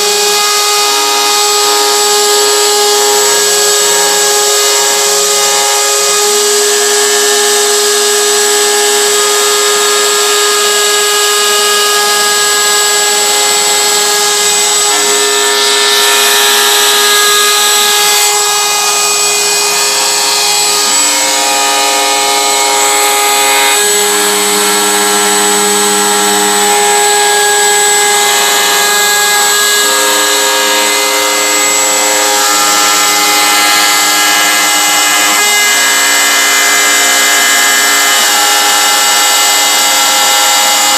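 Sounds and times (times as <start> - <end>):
bit carving wood: 0.0 - 40.9
router spindle whining: 0.0 - 40.9.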